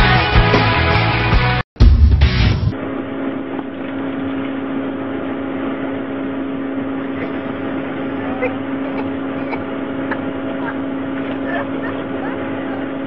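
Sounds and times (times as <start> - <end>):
lift machinery humming: 2.7 - 13.0.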